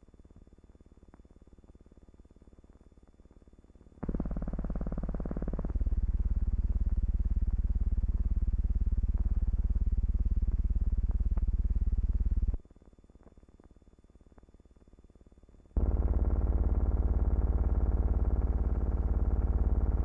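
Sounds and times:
loud low buzzing drone: 4.0s - 12.6s, 15.8s - 20.0s.

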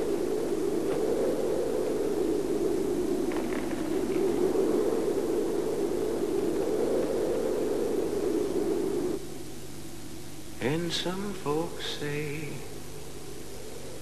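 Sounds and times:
wind rushing: 0.0s - 9.3s.

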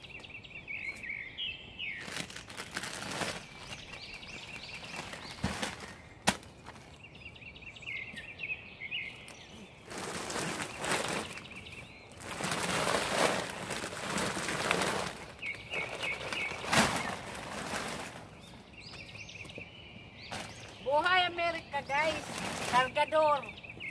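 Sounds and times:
small bird chirping: 0.0s - 12.7s, 15.0s - 23.9s
sacks rustling and scraping: 2.0s - 7.0s, 9.5s - 18.7s, 21.9s - 23.1s.

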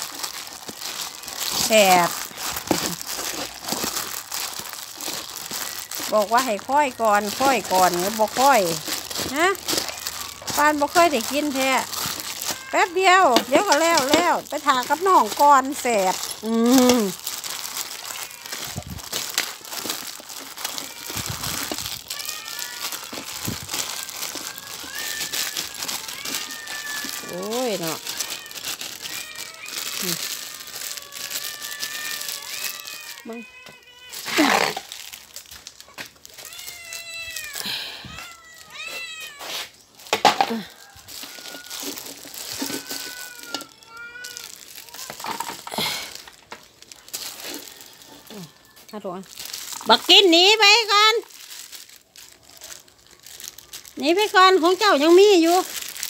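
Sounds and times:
cats meowing: 0.0s - 51.0s
plastic bag crinkling: 0.0s - 56.0s
cat crying loudly: 7.2s - 16.0s, 17.8s - 19.2s, 20.4s - 34.9s, 36.3s - 39.6s, 40.7s - 45.5s.

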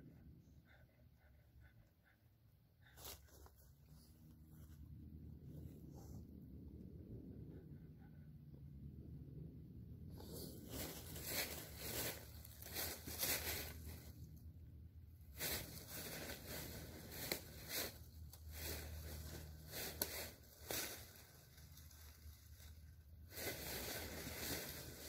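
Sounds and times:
low steady rumble: 0.0s - 25.0s
rustling and crinkling: 2.9s - 4.8s, 10.2s - 14.4s, 15.3s - 25.0s.

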